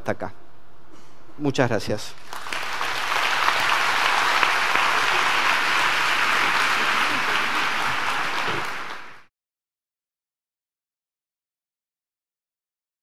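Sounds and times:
audience applauding: 2.2 - 9.3.

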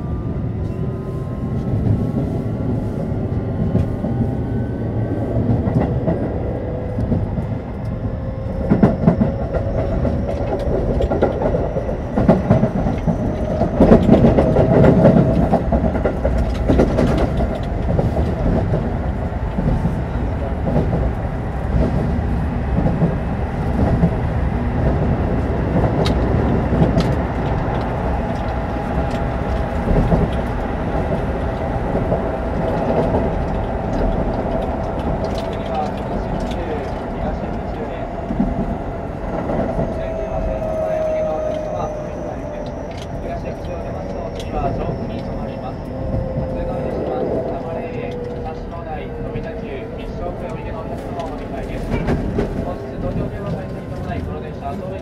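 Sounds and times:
wheel-on-rail rumble: 0.0 - 55.0
rail-joint clacks: 6.9 - 24.2, 24.8 - 55.0.

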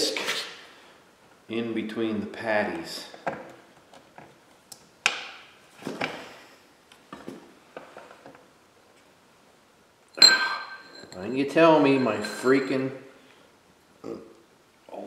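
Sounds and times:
metal clank with ring: 10.2 - 13.0.

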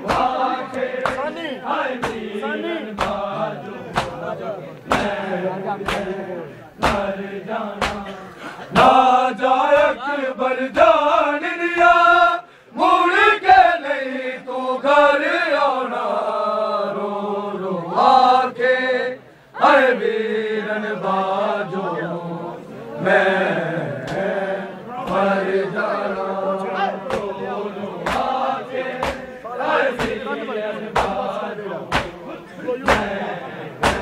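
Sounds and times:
hands slapping chests: 0.0 - 1.4, 2.0 - 2.3, 2.9 - 3.3, 3.9 - 5.2, 5.8 - 6.2, 6.8 - 8.2, 24.0 - 24.3, 25.0 - 25.3, 27.0 - 27.4, 28.0 - 29.4, 30.0 - 30.2, 30.9 - 31.3, 31.9 - 32.2, 32.8 - 33.2, 33.8 - 34.0
men chanting: 0.0 - 34.0.

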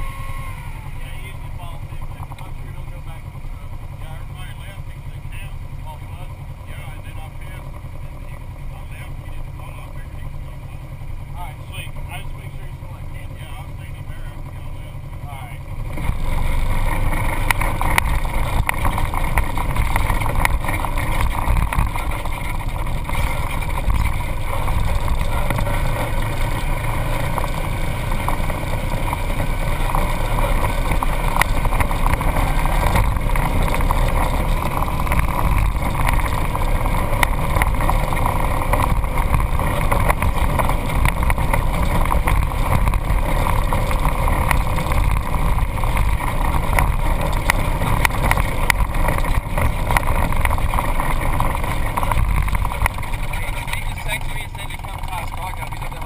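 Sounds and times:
off-road vehicle engine rumble: 0.0 - 56.0
knocks and rattles: 15.9 - 56.0.

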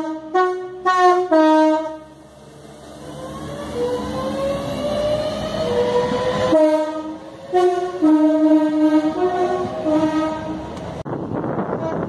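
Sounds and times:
two-tone train horn: 0.0 - 2.2, 6.4 - 10.7, 11.7 - 12.0
train running past: 0.0 - 12.0.

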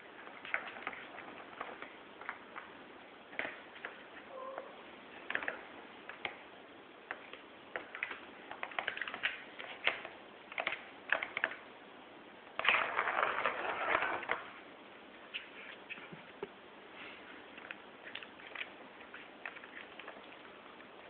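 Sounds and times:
rustling: 12.6 - 21.0.

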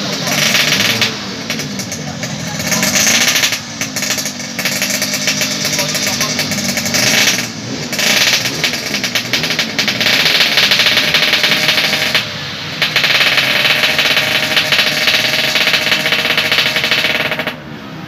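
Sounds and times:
two-stroke engine revving hard: 0.0 - 18.0.

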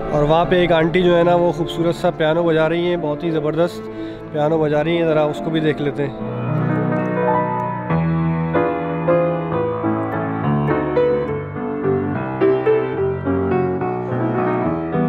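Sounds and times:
piano melody with chords: 0.0 - 15.0.

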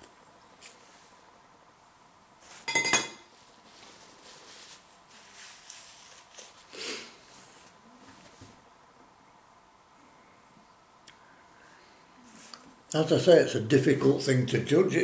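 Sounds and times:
paper tissue rustling: 3.3 - 8.6.

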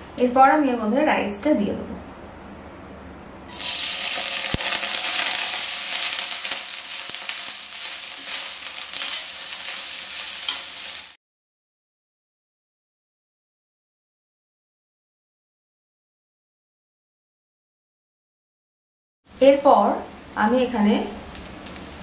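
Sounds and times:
rice sizzling in hot oil: 3.5 - 11.2, 19.8 - 22.0
spatula scraping pan: 3.6 - 11.1.

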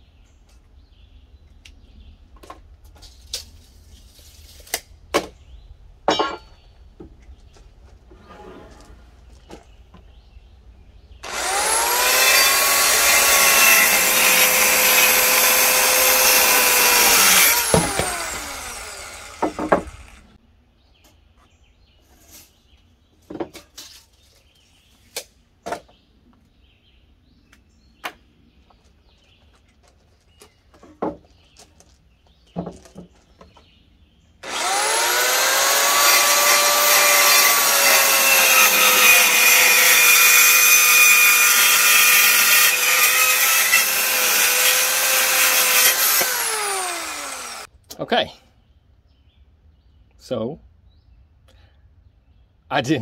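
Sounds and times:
circular saw cutting wood: 11.2 - 20.4, 34.4 - 47.7
saw winding down: 11.2 - 20.4, 34.4 - 47.7.

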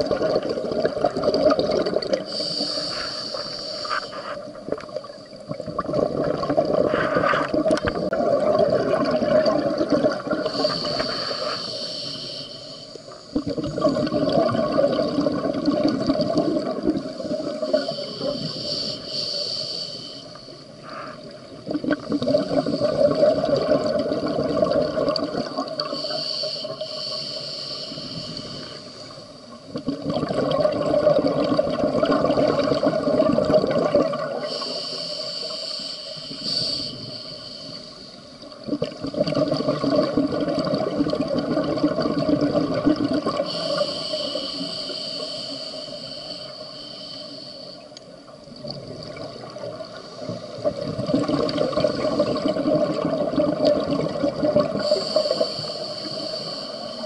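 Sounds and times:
bubbling underwater exhale: 0.0 - 12.4, 13.3 - 19.6, 20.8 - 37.9, 38.5 - 47.6, 48.6 - 57.0
regulator hiss on inhale: 2.1 - 4.6, 10.3 - 13.5, 16.6 - 23.8, 25.4 - 29.7, 34.2 - 38.6, 43.2 - 48.3, 49.6 - 50.9, 51.5 - 52.7, 54.6 - 57.0.

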